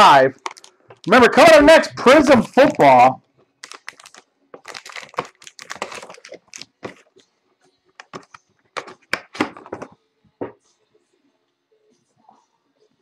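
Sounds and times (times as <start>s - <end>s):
plastic wrap crinkling: 0.3s - 1.1s, 3.5s - 7.3s
cardboard clicking and cracking: 3.6s - 7.1s.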